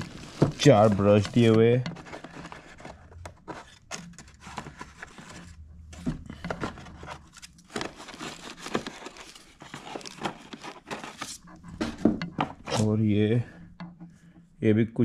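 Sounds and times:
small clicks and crinkles: 0.0s - 11.8s
hand rummaging in cardboard tray: 0.0s - 13.0s.

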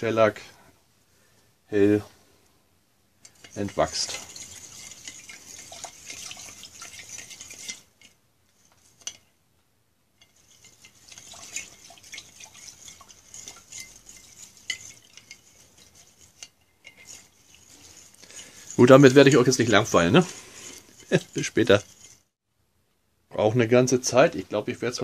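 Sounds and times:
rod scraping inside glass jar: 3.2s - 9.3s, 10.2s - 22.4s.

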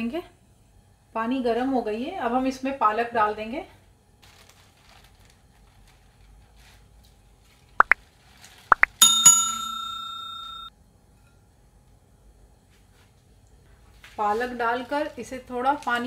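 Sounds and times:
bell ding: 9.0s - 10.7s.

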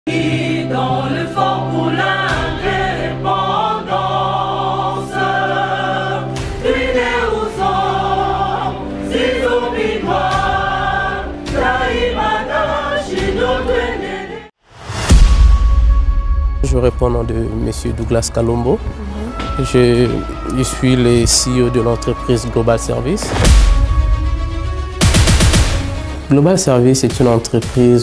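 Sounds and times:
choir singing over held note: 0.1s - 14.5s.

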